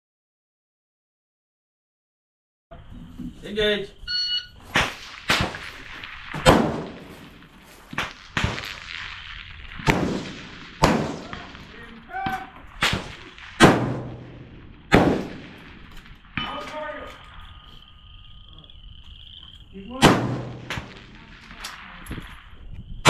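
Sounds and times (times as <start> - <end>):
shot timer beep: 4.1 - 4.5
rifle shots with echo: 4.8 - 17.5, 19.9 - 22.5.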